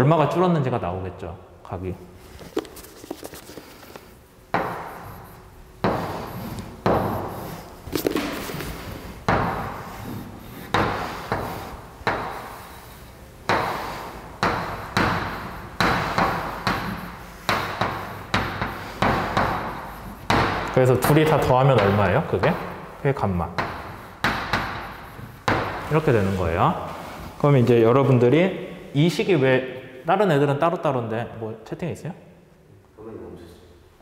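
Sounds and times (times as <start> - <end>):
chalk tapping and scraping: 2.3 - 27.8.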